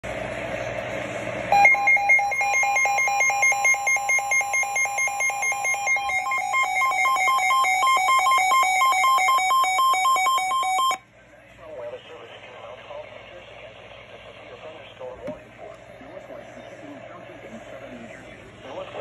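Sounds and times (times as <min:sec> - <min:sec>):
fast electronic alarm beeps: 0:01.5 - 0:11.0
higher alternating beep: 0:01.5 - 0:11.0
radio hiss: 0:11.4 - 0:19.0.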